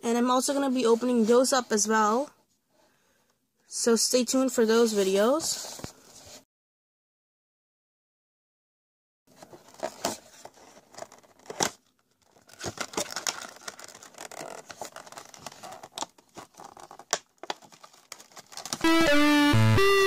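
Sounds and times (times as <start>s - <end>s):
cardboard box being opened: 9.3s - 18.8s
plastic tray crinkling: 9.3s - 18.9s
plucked guitar music: 18.8s - 20.0s.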